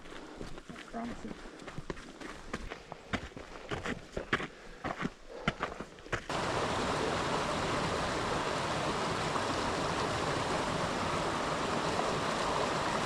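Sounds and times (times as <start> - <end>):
creek rushing over rocks: 6.3 - 13.0.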